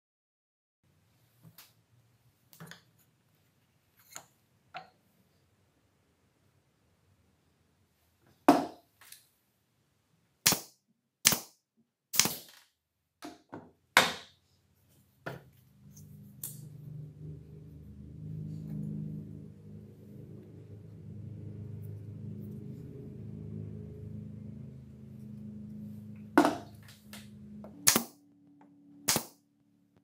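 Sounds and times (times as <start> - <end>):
nail gun firing into boards: 10.4 - 11.5, 12.1 - 12.6, 27.8 - 28.2, 29.1 - 29.4
low steady hum: 15.5 - 30.0.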